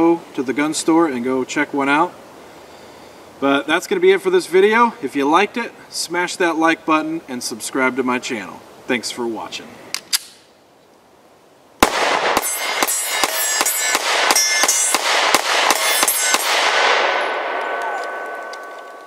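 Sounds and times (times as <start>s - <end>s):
metallic clangs ringing: 12.4s - 15.1s, 15.7s - 19.0s.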